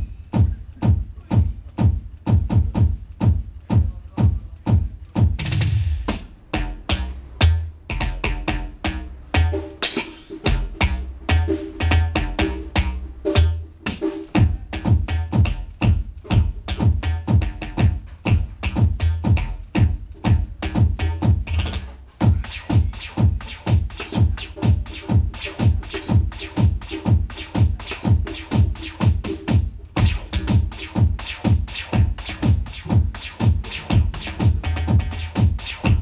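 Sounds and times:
deep kick drum thumps: 0:00.0 - 0:36.0
electronic drum solo: 0:00.0 - 0:36.0.

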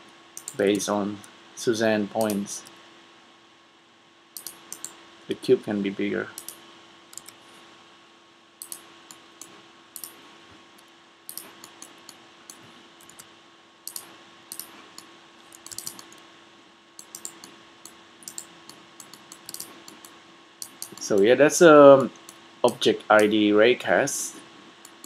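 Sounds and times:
steady low hum: 0:00.0 - 0:25.0
keyboard and mouse clicking: 0:00.4 - 0:00.6, 0:02.2 - 0:02.7, 0:04.4 - 0:05.0, 0:06.4 - 0:07.4, 0:08.6 - 0:10.2, 0:11.3 - 0:16.2, 0:17.0 - 0:21.3.

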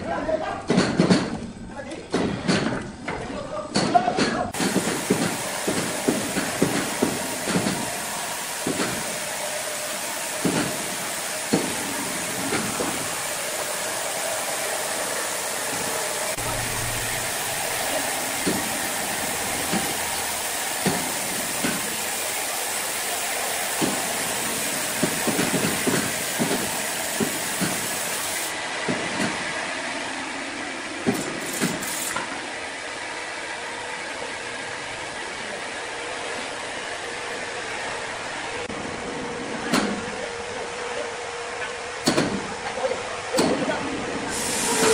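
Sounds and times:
band saw mill sawing log: 0:04.6 - 0:28.6.

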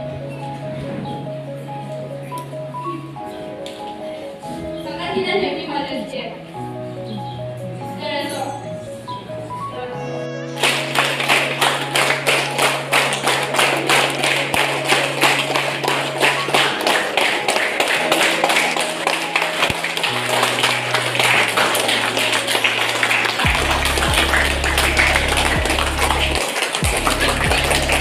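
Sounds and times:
electronic keyboard notes: 0:00.0 - 0:28.0
hands clapping in rhythm: 0:10.6 - 0:28.0.

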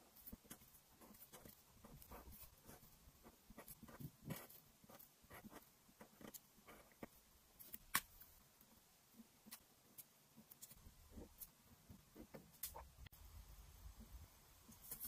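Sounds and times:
marker scratching on paper: 0:00.0 - 0:07.8.

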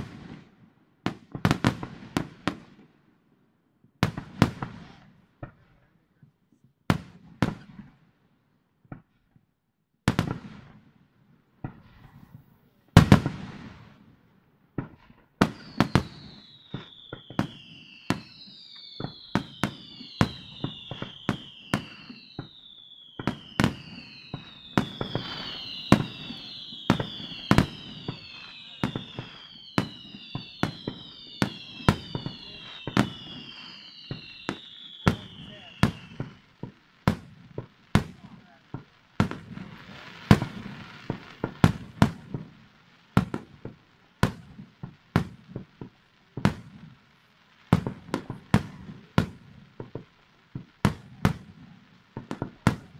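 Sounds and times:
firework bangs: 0:00.0 - 0:00.5, 0:10.1 - 0:10.9, 0:11.6 - 0:52.9
firework whistles: 0:14.8 - 0:45.7.

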